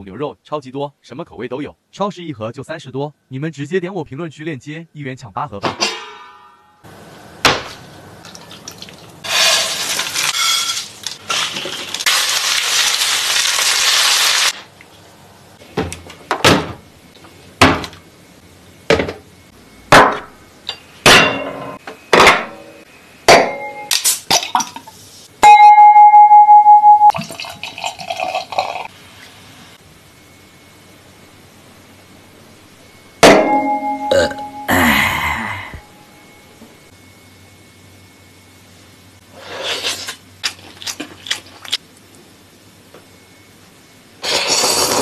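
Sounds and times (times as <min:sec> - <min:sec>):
loud pulsing tone: 0:32.9 - 0:38.5
hiss: 0:44.2 - 0:45.0.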